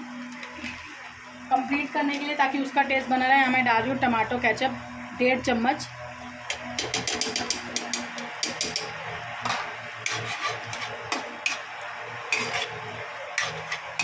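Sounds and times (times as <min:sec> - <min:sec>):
metal spatula scraping a pan: 0:10.0 - 0:11.7, 0:12.3 - 0:14.0.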